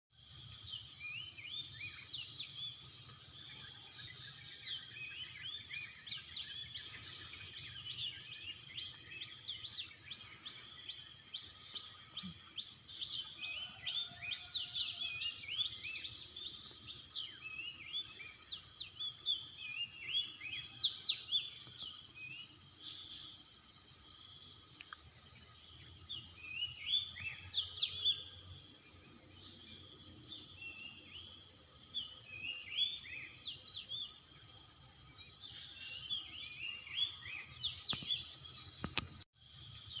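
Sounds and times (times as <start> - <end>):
high-pitched insect drone: 0.1 - 40.0
small birds chirping: 0.7 - 23.3, 35.3 - 39.2.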